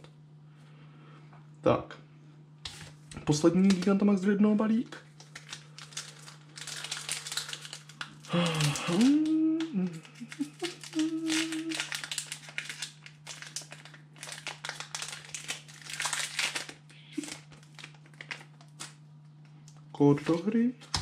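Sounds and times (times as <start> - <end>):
steady low hum: 0.0 - 21.0
foil wrapper crinkling: 2.7 - 4.0, 5.1 - 19.0, 20.1 - 21.0.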